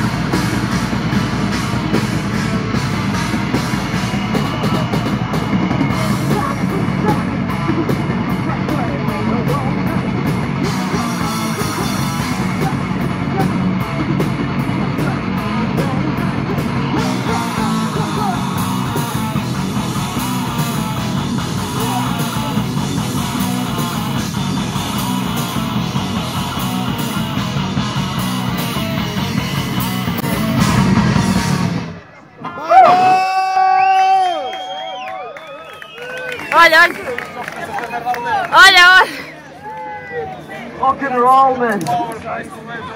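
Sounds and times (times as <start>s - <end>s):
metal band playing: 0.0s - 32.1s.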